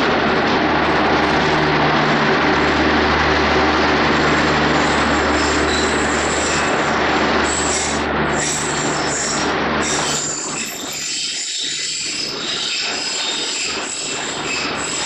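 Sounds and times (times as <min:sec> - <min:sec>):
train wheels rumbling on rails: 0:00.0 - 0:15.0
high wheel squeal: 0:04.8 - 0:15.0.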